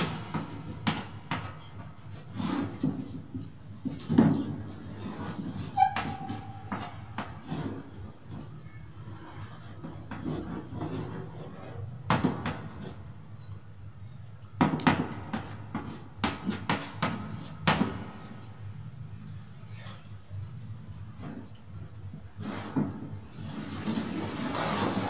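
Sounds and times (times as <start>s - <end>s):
chalk tapping on blackboard: 14.6s - 17.2s.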